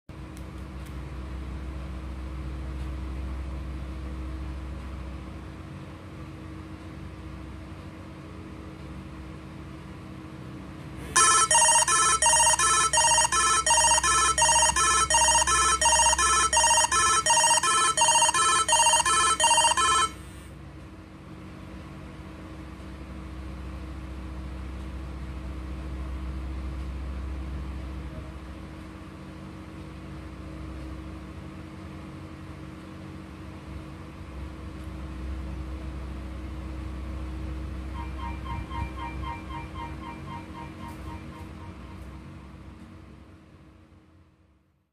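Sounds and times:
low steady hum: 11.0s - 20.5s, 36.3s - 43.4s
phone ringtone: 11.2s - 20.2s, 37.9s - 42.2s.

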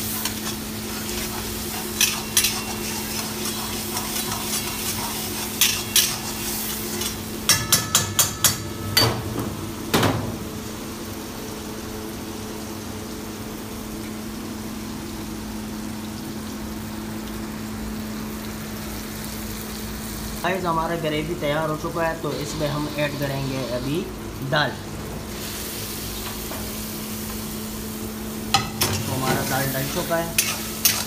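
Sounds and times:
gravy simmering and sizzling: 0.0s - 31.0s
metal spatula knocking wok: 7.0s - 10.1s.

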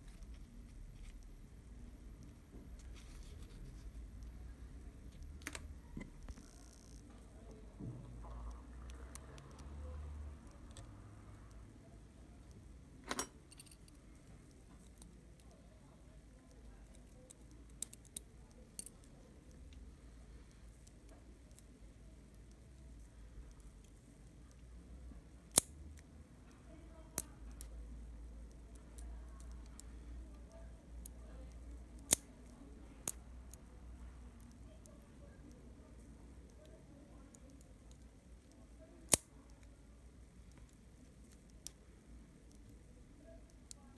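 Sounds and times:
small metal clicks: 25.5s - 27.7s, 37.3s - 39.7s.

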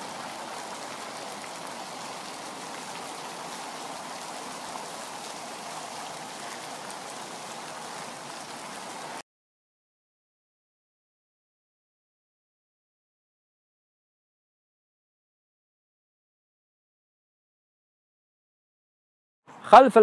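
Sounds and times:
fountain water splashing: 0.0s - 9.2s.

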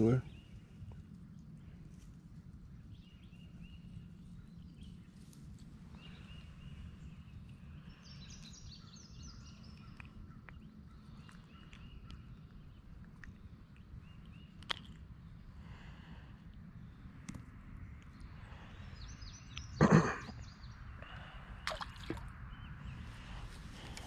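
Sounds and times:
low outdoor rumble: 0.0s - 24.0s
birds calling: 18.2s - 24.0s.

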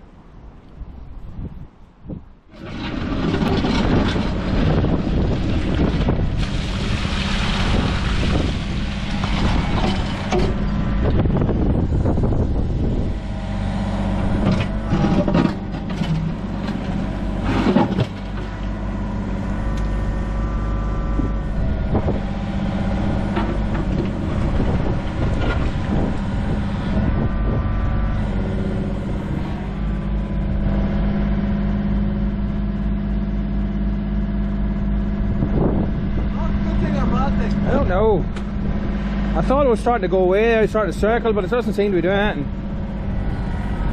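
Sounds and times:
hydraulics whining: 2.4s - 43.9s
bucket knocking and scraping: 2.5s - 10.8s, 14.4s - 18.8s
diesel engine running: 2.5s - 43.9s.

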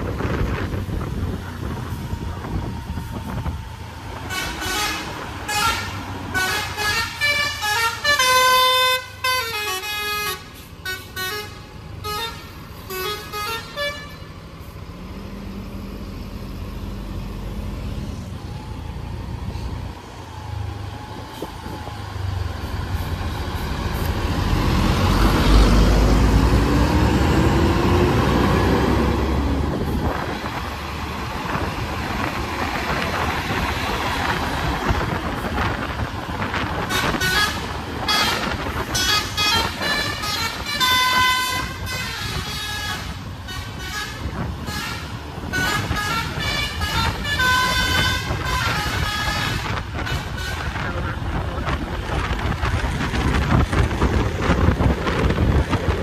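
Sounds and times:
bus engine rumbling: 0.0s - 56.0s
bus air horn toots: 4.2s - 14.3s, 36.8s - 51.0s.

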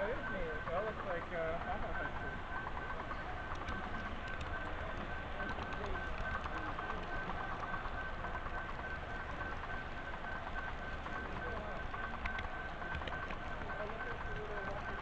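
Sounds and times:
light clicking over track: 2.1s - 15.0s.

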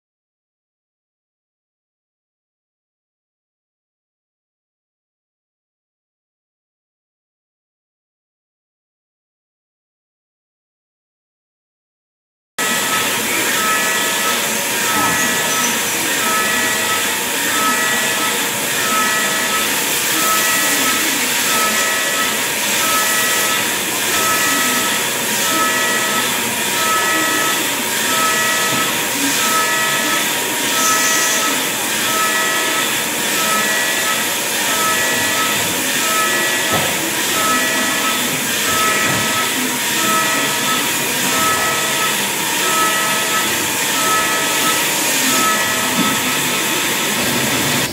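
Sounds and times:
milling machine cutting steel: 12.6s - 47.9s.

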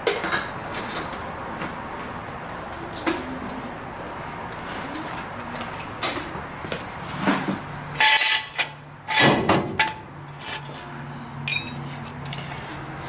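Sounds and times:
metal jack stand clanking: 8.0s - 10.7s, 11.4s - 12.5s.

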